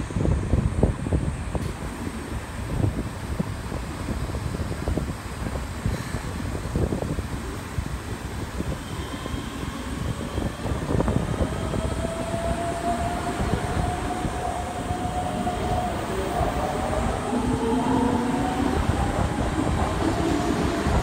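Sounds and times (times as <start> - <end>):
train low rumble: 0.0 - 21.0.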